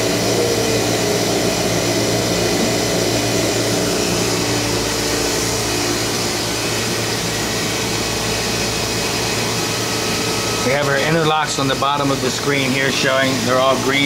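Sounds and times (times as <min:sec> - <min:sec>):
machinery hum with held tones: 0:00.0 - 0:14.0
vacuum pumps hissing: 0:00.0 - 0:14.0.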